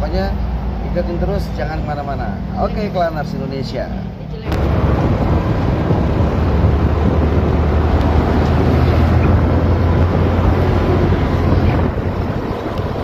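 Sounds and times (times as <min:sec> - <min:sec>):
vehicle engine and road noise: 0:00.0 - 0:13.0
wind buffeting microphone: 0:04.4 - 0:13.0.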